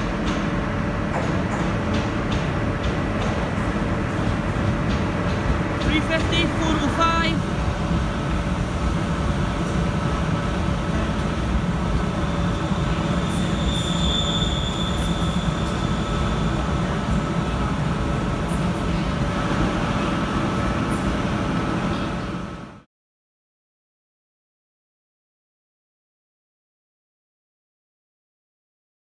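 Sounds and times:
train rumbling with motor hum: 0.0s - 22.8s
high wheel squeal: 12.2s - 17.2s.

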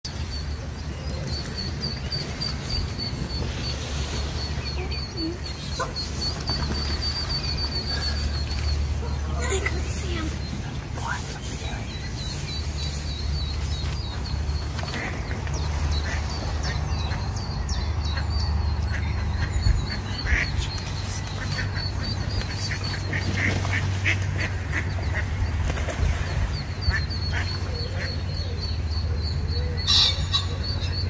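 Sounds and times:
ducks quacking: 2.4s - 17.4s, 18.0s - 26.0s, 26.8s - 28.5s.

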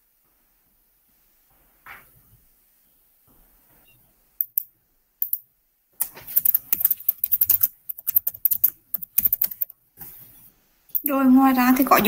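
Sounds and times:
typing on computer keyboard: 6.0s - 9.7s.

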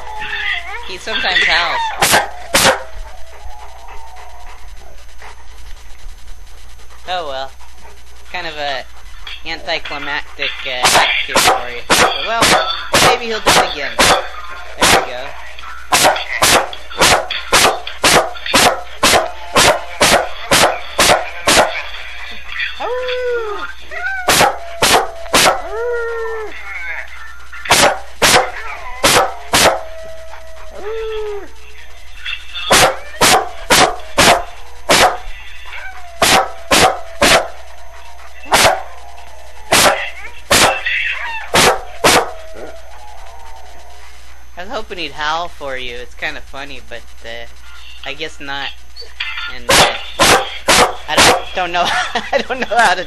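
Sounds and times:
howling from phone speaker: 0.0s - 5.8s, 11.1s - 44.6s
dog barking: 1.2s - 3.0s, 10.8s - 15.3s, 15.9s - 21.9s, 24.2s - 25.8s, 27.7s - 29.9s, 32.6s - 35.4s, 36.2s - 39.0s, 39.7s - 42.7s, 49.7s - 51.6s.

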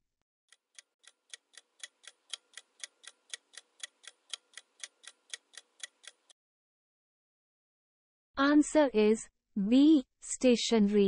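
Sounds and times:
clock ticking: 0.5s - 6.4s.

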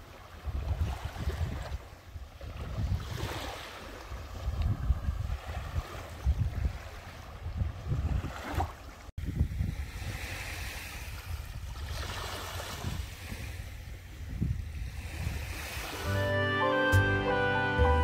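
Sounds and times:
small waves lapping on beach: 0.0s - 16.1s
wind on microphone: 0.3s - 16.3s
music: 16.1s - 18.0s.

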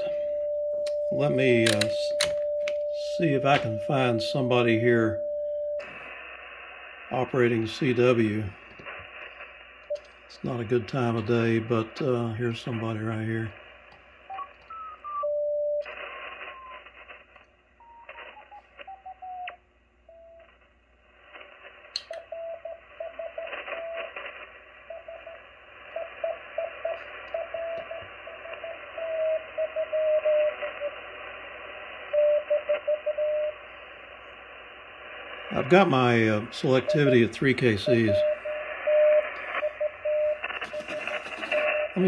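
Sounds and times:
radio band hiss: 0.0s - 0.4s, 1.1s - 5.2s, 5.8s - 15.2s, 15.8s - 19.6s, 20.4s - 42.0s
morse code tone: 0.0s - 5.8s, 35.6s - 42.0s.

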